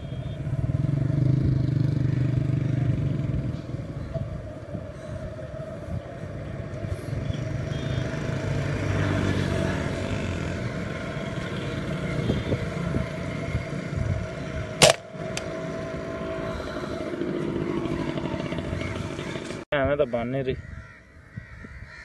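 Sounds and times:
vehicle engine drone: 0.0 - 19.7
rifle shot: 14.8 - 15.1.

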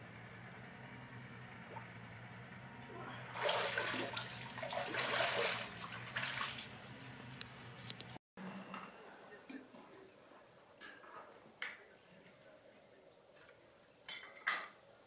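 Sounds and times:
low steady hum: 0.0 - 10.8
water pouring and splashing: 3.3 - 7.4.

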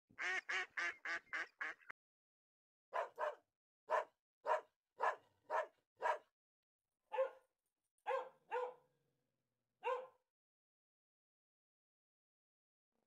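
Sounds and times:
small dog barking: 3.0 - 6.3, 7.1 - 7.5, 8.1 - 8.9, 9.8 - 10.2.

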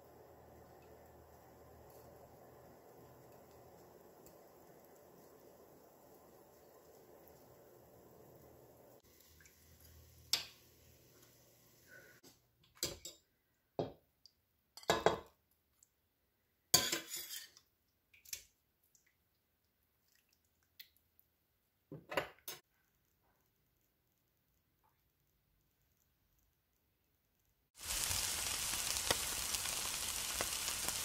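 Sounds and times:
metal spoon clinking and scraping dishes: 16.8 - 17.6.

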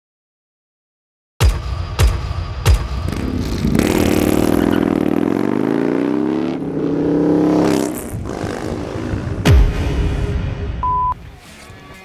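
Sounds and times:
motorcycle engine revving: 3.0 - 10.3
deep impact hits: 8.0 - 10.9.

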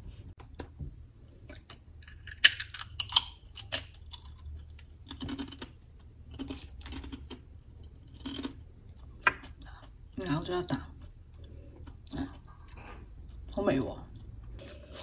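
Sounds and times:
chewing crunches: 1.4 - 10.0
crunching taco shell: 1.6 - 7.4.

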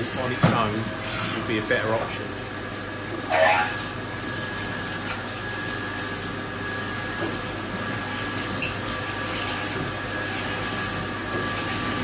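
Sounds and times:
milling machine spindle tone: 3.2 - 12.0.

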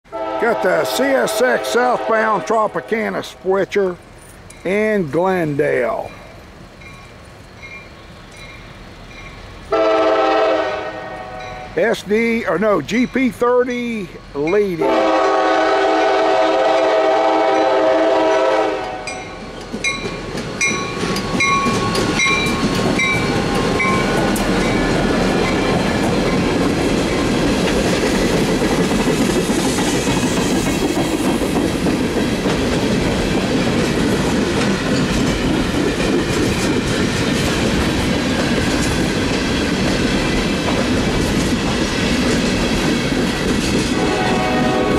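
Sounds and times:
locomotive horn chord: 0.1 - 3.5, 9.7 - 11.8, 14.8 - 19.2, 44.0 - 44.9
locomotive bell ringing: 0.7 - 9.5, 11.0 - 15.0, 17.5 - 27.3
train wheels clickety-clack: 17.5 - 44.9.

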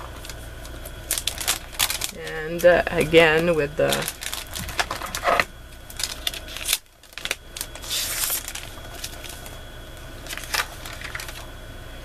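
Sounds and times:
paper rustling: 3.4 - 9.6, 10.2 - 11.5.

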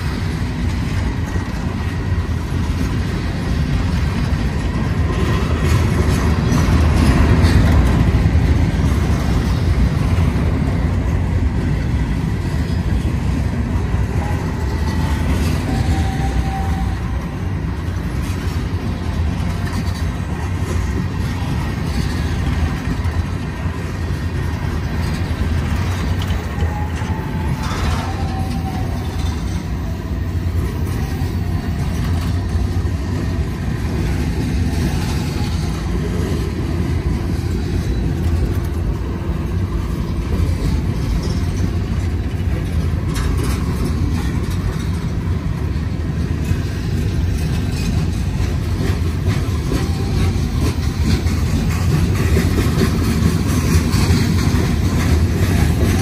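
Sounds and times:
freight train wheels rumbling: 0.0 - 56.0
faint squeals and clanks: 25.8 - 29.8.

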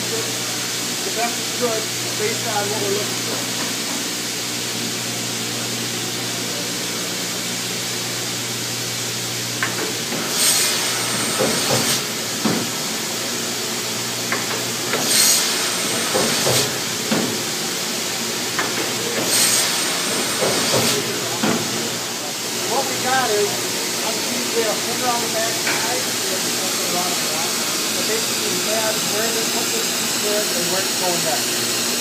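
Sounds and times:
saw machine hum: 0.0 - 32.0
saw cutting board: 10.1 - 12.6, 14.9 - 17.2, 19.2 - 21.7.

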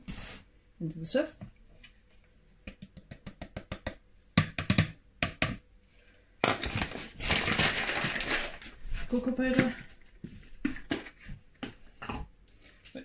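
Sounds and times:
rustling: 6.5 - 13.0.

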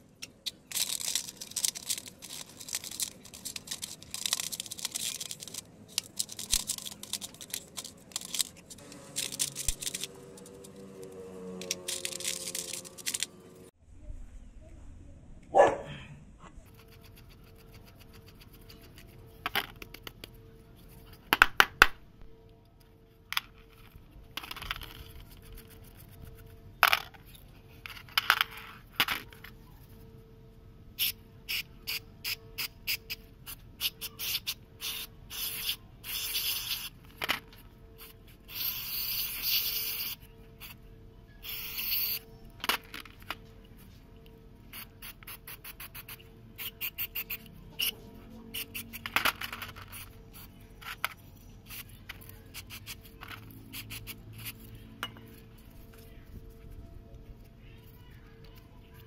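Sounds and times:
spray can hissing: 33.8 - 36.9, 38.0 - 40.7, 41.4 - 42.2.

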